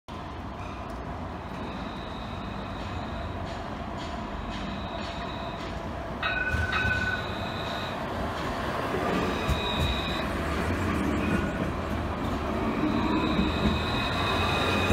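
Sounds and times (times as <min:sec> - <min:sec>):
tram wheels rumbling: 0:00.1 - 0:14.9
high ringing tone: 0:01.4 - 0:03.5, 0:04.6 - 0:08.1, 0:09.2 - 0:10.4, 0:12.7 - 0:14.9.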